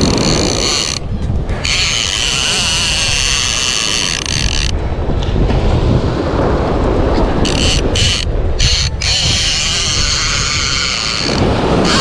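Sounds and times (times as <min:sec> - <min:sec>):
fishing reel drag screaming: 0:01.6 - 0:04.7, 0:07.4 - 0:12.0.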